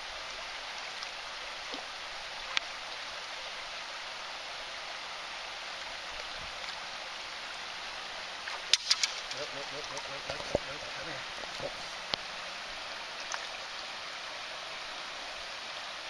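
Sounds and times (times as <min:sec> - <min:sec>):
creek water running: 0:00.0 - 0:16.0
sharp click: 0:08.7 - 0:09.5.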